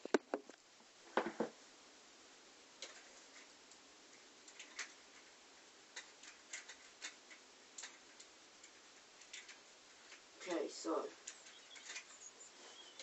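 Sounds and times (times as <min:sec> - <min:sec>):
faint clicks of small objects: 0:02.8 - 0:13.0.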